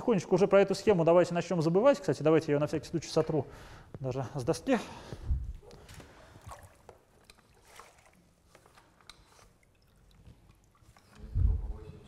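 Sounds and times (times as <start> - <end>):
faint footsteps: 5.0 - 7.0
water noise from wet mop: 5.7 - 11.3.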